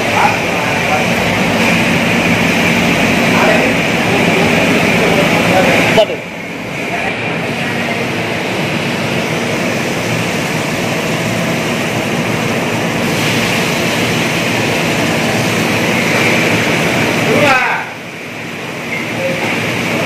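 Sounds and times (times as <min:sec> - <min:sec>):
oil bubbling in deep fryer: 0:06.5 - 0:20.0.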